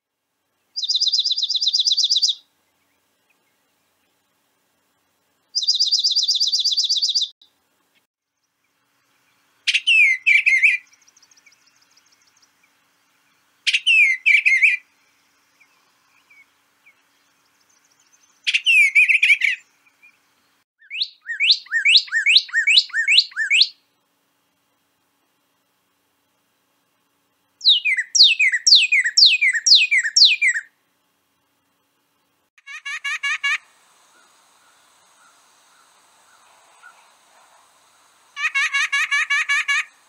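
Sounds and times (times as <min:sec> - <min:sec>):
bird trill: 0:00.8 - 0:02.4, 0:05.6 - 0:07.3, 0:09.7 - 0:12.2, 0:13.7 - 0:14.8, 0:18.2 - 0:20.1, 0:20.8 - 0:23.8, 0:27.6 - 0:30.7.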